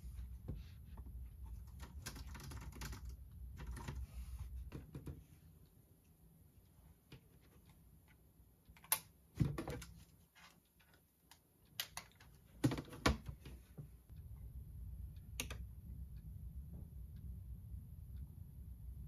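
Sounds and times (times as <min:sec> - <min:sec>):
low steady rumble: 0:14.0 - 0:19.0.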